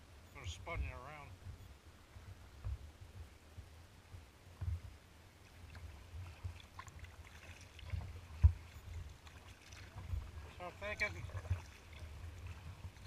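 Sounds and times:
paddle splashes and drips: 0:05.4 - 0:13.0
dull knocks on kayak: 0:08.4 - 0:08.6.

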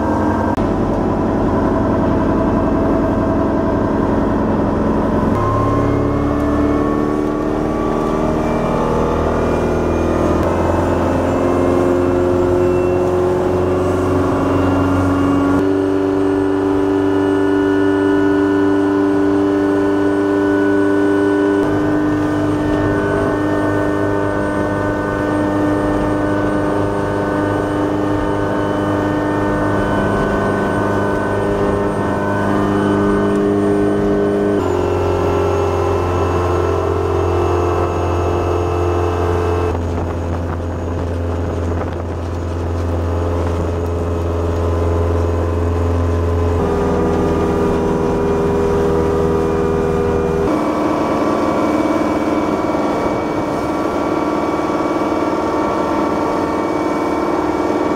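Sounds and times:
boat engine running: 0:00.0 - 0:57.9.

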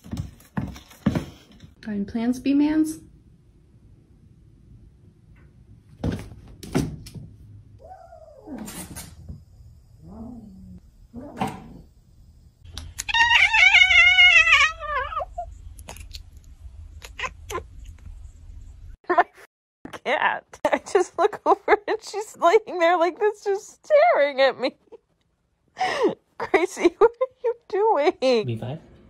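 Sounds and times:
cat meowing loudly: 0:13.0 - 0:15.4.

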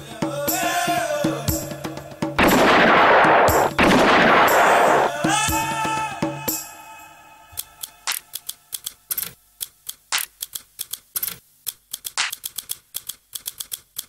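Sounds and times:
sharp clicks and snaps beat: 0:02.4 - 0:05.2, 0:07.6 - 0:14.0.

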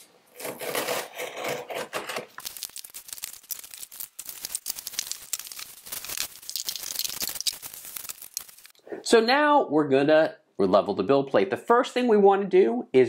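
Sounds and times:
blade scraping through tape: 0:00.3 - 0:02.4
plastic wrapping crackling: 0:02.4 - 0:08.8.

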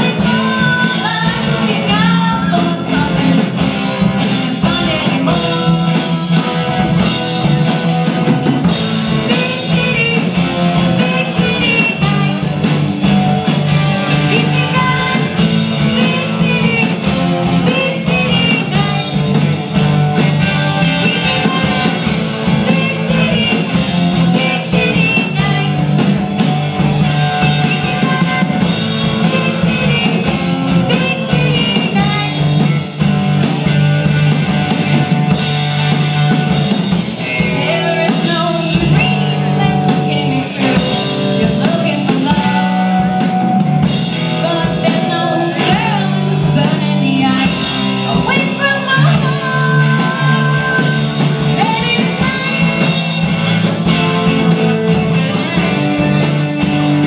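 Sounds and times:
woman singing: 0:00.0 - 0:33.0, 0:35.3 - 0:53.3
drum kit: 0:00.0 - 0:57.0
electric guitars: 0:00.0 - 0:57.0.

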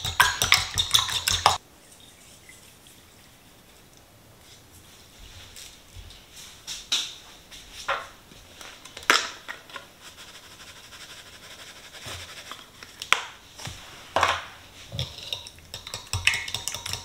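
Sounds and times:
fork stirring eggs in a bowl: 0:00.0 - 0:01.6, 0:14.9 - 0:17.0
seasoning shaker tapping: 0:00.0 - 0:01.6, 0:15.0 - 0:17.0.

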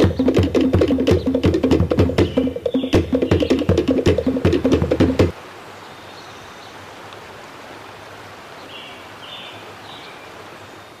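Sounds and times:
percussive music with wood blocks: 0:00.0 - 0:05.3
outdoor ambience hiss: 0:00.0 - 0:11.0.

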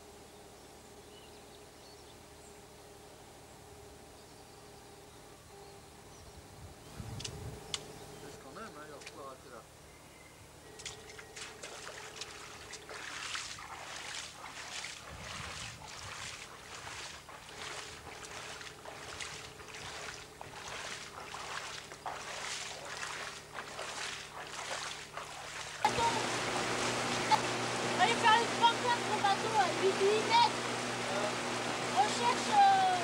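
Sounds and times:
boots sloshing through water: 0:10.8 - 0:31.0
loud steady sound: 0:25.8 - 0:33.0.

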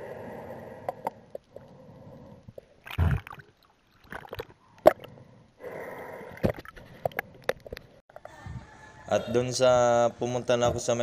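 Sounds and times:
underwater gurgling: 0:02.6 - 0:05.1
underwater bubbles bursting: 0:02.8 - 0:05.1
sharp underwater clicks and knocks: 0:06.4 - 0:08.3.

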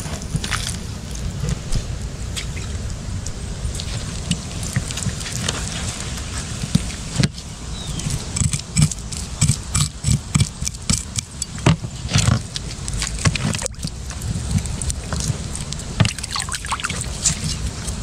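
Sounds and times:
low steady rumble: 0:00.0 - 0:18.0
knife scraping fish: 0:07.9 - 0:13.7.

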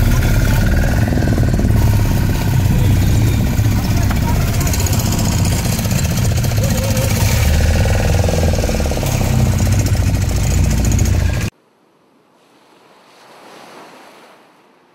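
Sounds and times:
boat engine chugging: 0:00.0 - 0:11.5.

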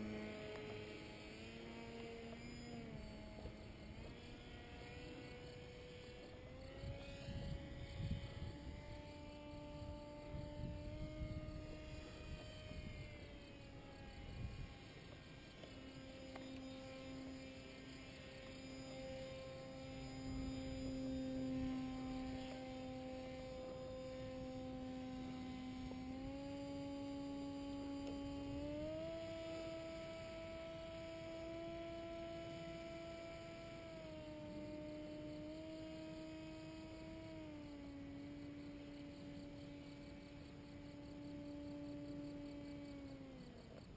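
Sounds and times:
wind rumble on microphone: 0:00.0 - 0:15.4
paramotor engine droning: 0:00.0 - 0:43.9.

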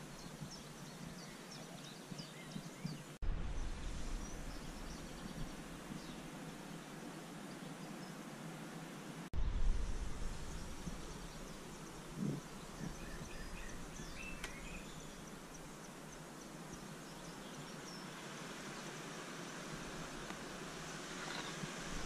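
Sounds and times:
wind rumble on microphone: 0:00.0 - 0:07.1, 0:09.4 - 0:16.0, 0:19.8 - 0:22.0.

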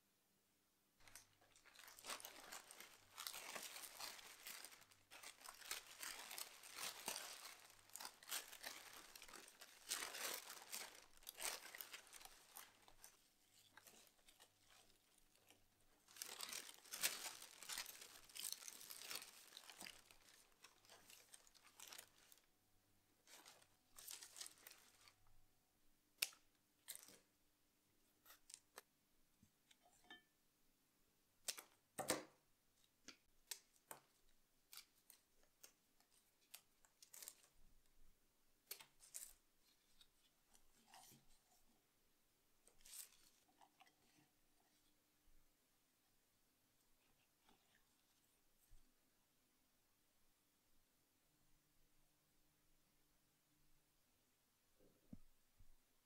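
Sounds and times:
paper wrapping crinkling: 0:01.0 - 0:22.5, 0:23.2 - 0:25.2, 0:33.5 - 0:37.6, 0:38.7 - 0:41.2, 0:42.7 - 0:44.1.

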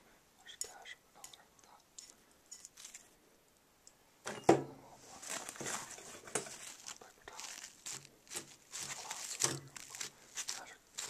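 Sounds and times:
camera handling rustling: 0:05.2 - 0:11.0.

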